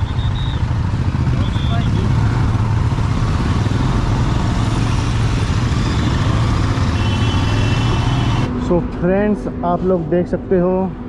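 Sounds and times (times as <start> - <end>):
motorcycle engine running: 0.0 - 8.5
other motorcycles: 0.0 - 11.0.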